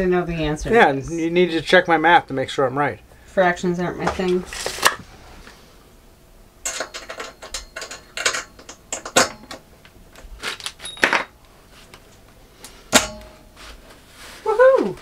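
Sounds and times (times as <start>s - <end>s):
small metal parts clicking and rattling: 6.7s - 9.6s.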